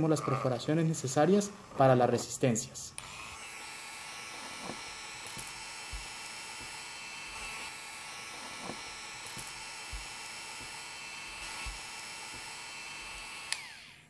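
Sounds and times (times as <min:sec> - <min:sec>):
mini drill whining: 0:02.9 - 0:14.0.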